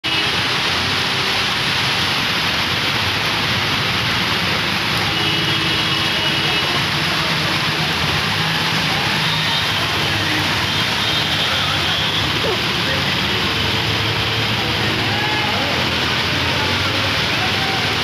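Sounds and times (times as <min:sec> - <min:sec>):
floodwater rushing: 0:00.0 - 0:18.0
heavy rain hissing: 0:00.1 - 0:18.0.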